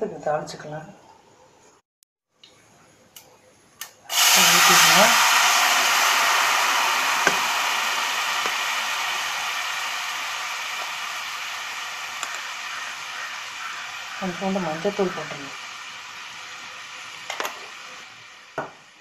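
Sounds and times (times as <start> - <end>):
liquid pouring splash: 4.1 - 14.3
broth sizzling in hot oil: 4.1 - 19.0.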